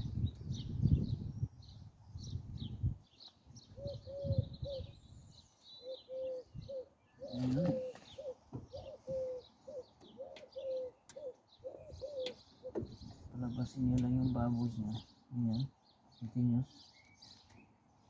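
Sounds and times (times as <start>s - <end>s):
birds cooing: 3.6s - 17.1s.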